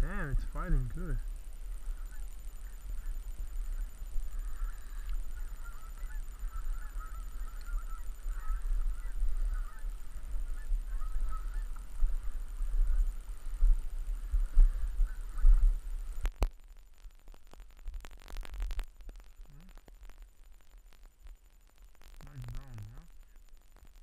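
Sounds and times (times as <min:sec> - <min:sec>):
geese honking: 0:01.7 - 0:15.9.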